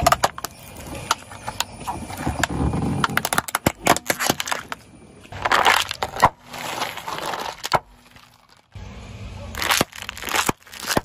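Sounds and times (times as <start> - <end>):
loud crunch: 1.8 - 8.8, 9.6 - 11.0
plastic toy cracking under tyre: 2.4 - 8.6, 9.6 - 11.0.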